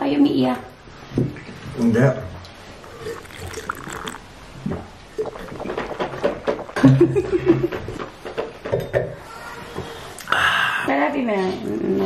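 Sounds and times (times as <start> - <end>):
sipping and gulping: 2.5 - 8.2
slurps and lip smacks: 2.8 - 8.1.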